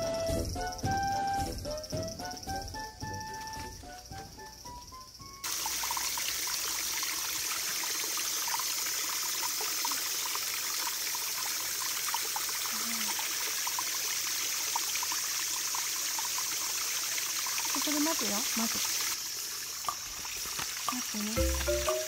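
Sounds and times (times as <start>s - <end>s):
water trickling over rocks: 5.4s - 22.0s.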